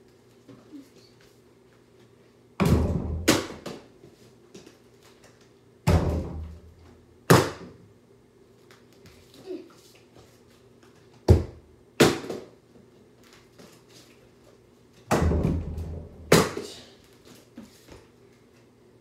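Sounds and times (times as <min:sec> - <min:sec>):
ball thunking on hoop: 0:02.6 - 0:03.8, 0:05.8 - 0:06.6, 0:15.1 - 0:16.6.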